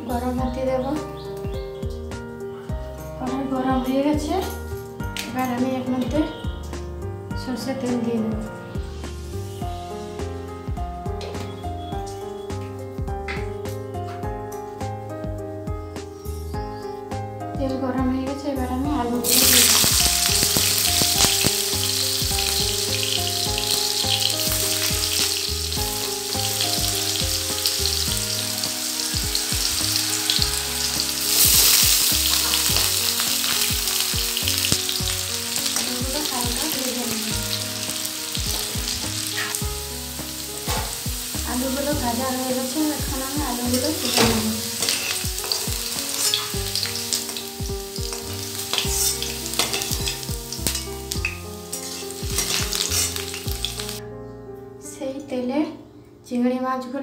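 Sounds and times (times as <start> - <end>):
potatoes sizzling in oil: 19.2 - 54.0
metal spatula scraping: 43.9 - 47.2, 48.1 - 51.0, 51.7 - 53.5.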